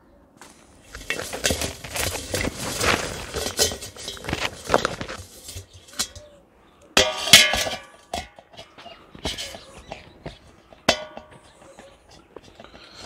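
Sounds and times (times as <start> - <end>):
metal knocking on metal bowl: 3.4 - 6.4, 7.0 - 12.6.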